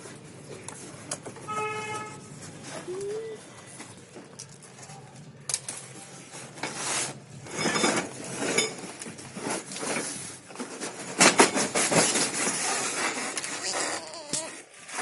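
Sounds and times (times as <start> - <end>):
cardboard scraping and rustling: 7.8 - 15.0.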